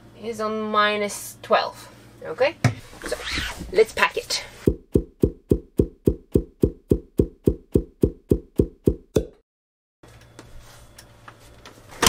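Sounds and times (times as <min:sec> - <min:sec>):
fast muffled thumps: 0:04.6 - 0:09.1.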